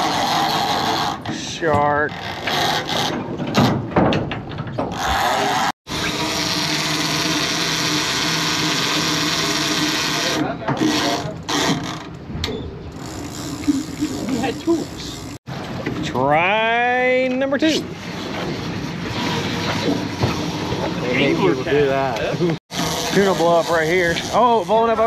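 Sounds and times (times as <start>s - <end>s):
fishing reel geared whir: 0.0s - 1.2s, 5.0s - 12.1s, 13.0s - 15.4s, 22.7s - 24.9s
fishing reel ratcheting clatter: 6.0s - 12.1s, 13.0s - 15.4s, 22.7s - 25.0s.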